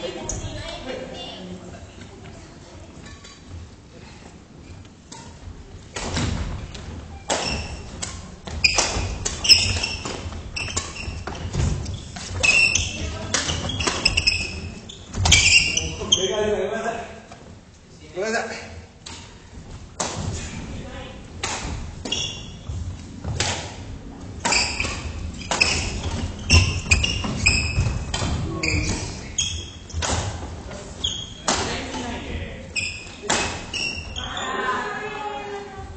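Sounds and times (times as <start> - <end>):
shoes squeaking on floor: 2.3 - 16.6, 21.8 - 23.4, 24.2 - 35.2
racket hitting shuttlecock: 7.3 - 14.2, 24.4 - 29.1, 29.9 - 30.4, 33.2 - 33.8
rackets striking shuttlecock: 24.4 - 28.4.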